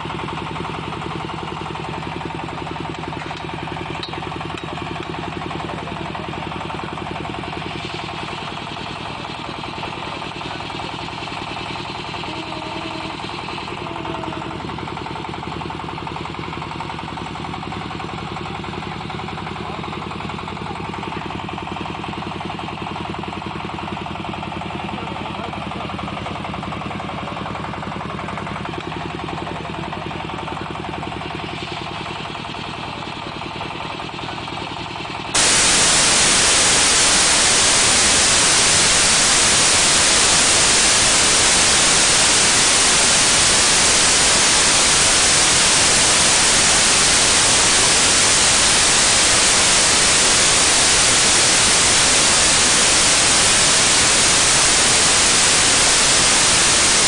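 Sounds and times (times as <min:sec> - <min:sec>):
diesel engine running: 0:00.0 - 0:57.0
loud static hiss: 0:35.4 - 0:57.0.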